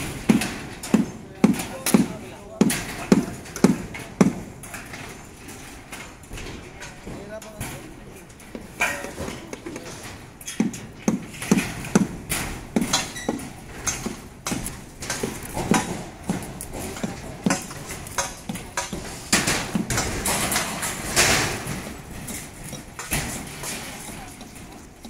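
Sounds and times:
metal clattering: 0:00.0 - 0:25.0
knocks on steel decking: 0:10.5 - 0:23.9.

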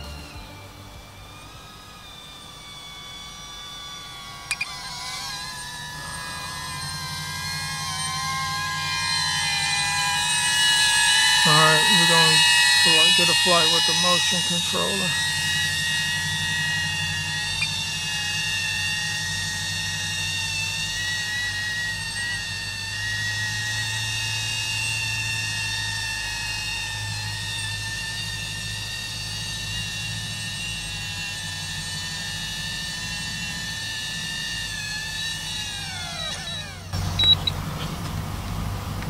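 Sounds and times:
drone propellers whining: 0:00.0 - 0:39.0.

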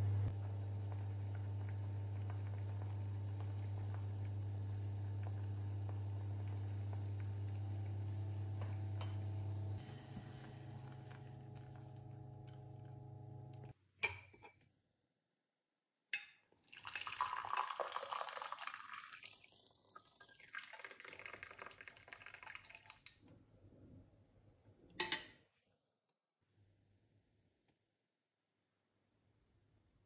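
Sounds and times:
low electrical hum: 0:00.0 - 0:13.8
liquid pouring into glass: 0:16.6 - 0:23.2.

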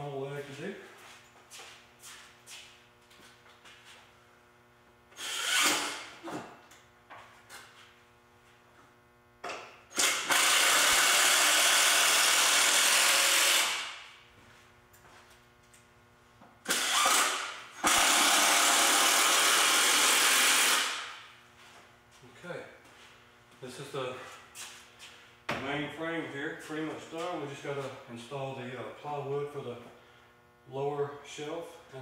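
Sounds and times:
impact driver driving screws: 0:05.2 - 0:06.1, 0:09.9 - 0:13.9, 0:16.7 - 0:21.1.

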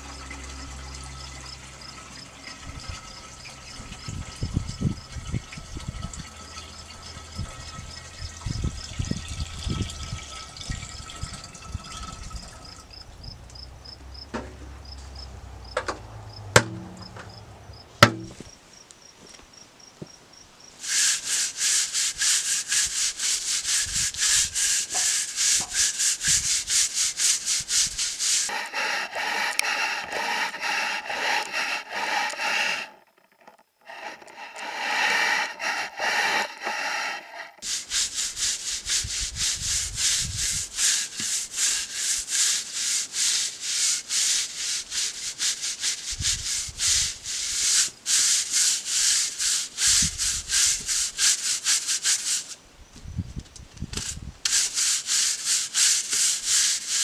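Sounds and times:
push broom scrubbing log bark: 0:16.6 - 0:17.4, 0:18.0 - 0:18.4, 0:20.8 - 0:52.6, 0:54.0 - 0:57.0.

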